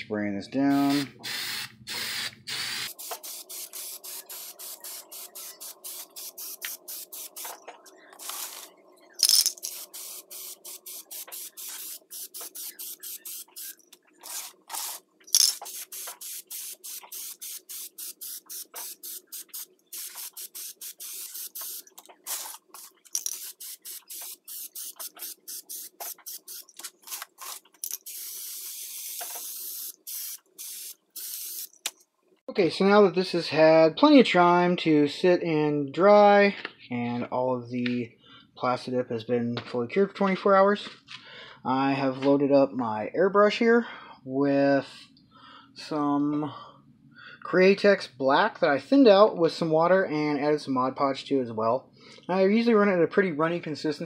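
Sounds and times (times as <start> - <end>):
aerosol can spraying hiss: 0.7 - 7.6, 8.2 - 8.7, 9.6 - 31.7.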